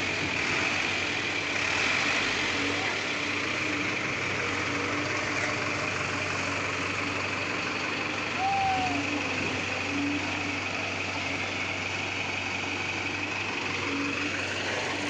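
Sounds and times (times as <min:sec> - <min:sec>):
heavy diesel engines idling: 0:00.0 - 0:15.0.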